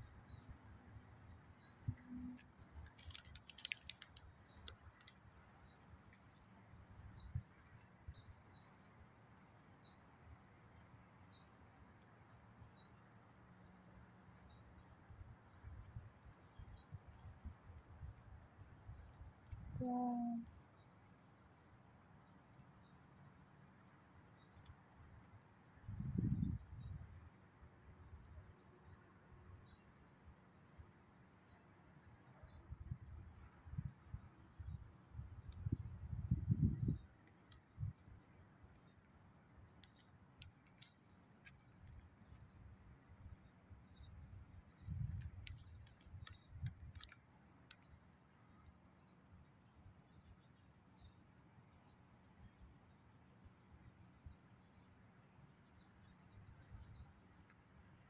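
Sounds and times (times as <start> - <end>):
faint sharp clicks: 1.6 - 9.0, 17.8 - 19.7, 36.8 - 38.0, 39.6 - 42.5, 44.7 - 49.2, 56.7 - 57.9.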